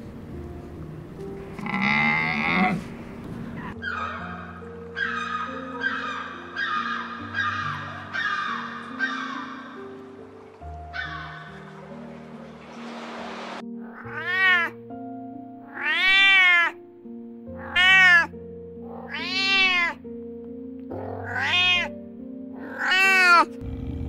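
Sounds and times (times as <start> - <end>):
background music: 0.0 - 24.0
cat meowing: 13.9 - 14.8, 15.7 - 16.8, 17.6 - 18.3, 18.9 - 20.0, 20.9 - 21.9, 22.6 - 23.5.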